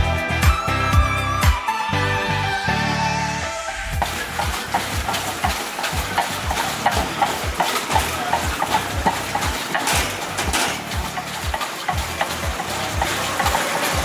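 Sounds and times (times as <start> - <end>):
wooden churning stick knocking: 4.0 - 14.0.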